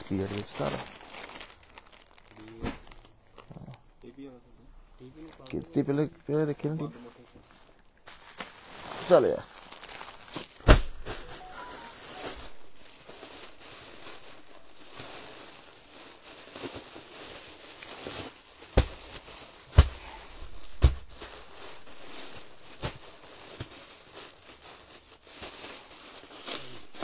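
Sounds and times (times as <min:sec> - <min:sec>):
plastic packets crinkling: 0:00.0 - 0:04.2, 0:05.0 - 0:27.0
packets thumping on floor: 0:10.0 - 0:12.6, 0:18.1 - 0:23.9.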